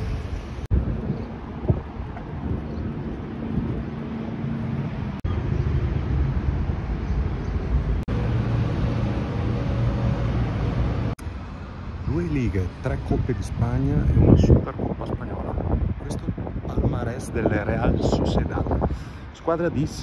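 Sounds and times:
vehicle engines humming: 0.0s - 14.6s.

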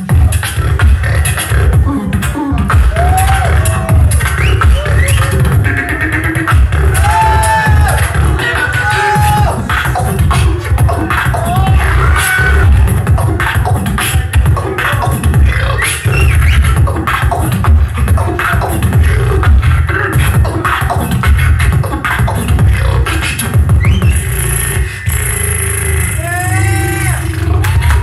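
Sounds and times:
amplified beatboxing: 0.0s - 28.0s.

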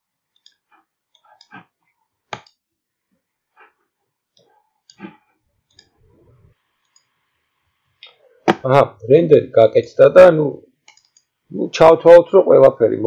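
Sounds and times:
computer mouse clicks: 4.3s - 6.0s, 10.9s - 11.3s.

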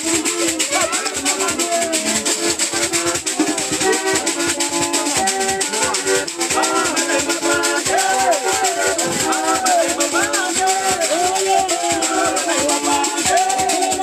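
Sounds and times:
shaker rattles: 0.0s - 14.0s
group singing: 4.9s - 14.0s.

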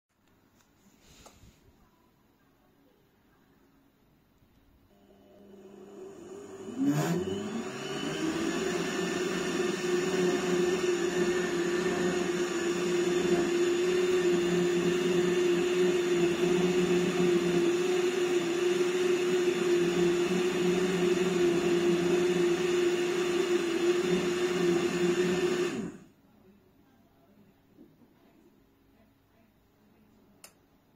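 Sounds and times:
blender motor whining: 4.9s - 26.1s.

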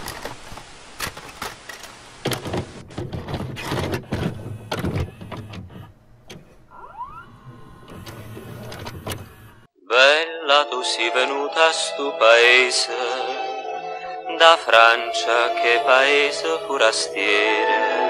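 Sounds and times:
tape mechanism clicks and clunks: 0.0s - 9.7s.

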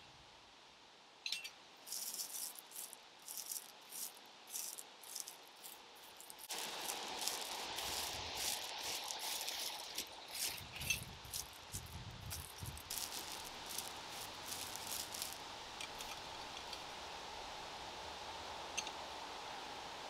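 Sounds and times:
steady hiss: 0.0s - 20.0s
gravel scraping and rattling: 1.9s - 16.7s.

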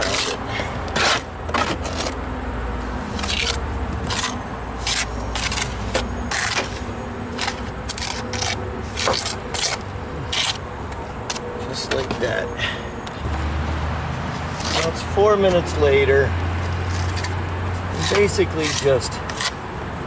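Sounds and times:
trowel scraping mortar: 0.0s - 2.2s, 3.1s - 10.6s, 14.5s - 15.6s, 16.9s - 19.6s.

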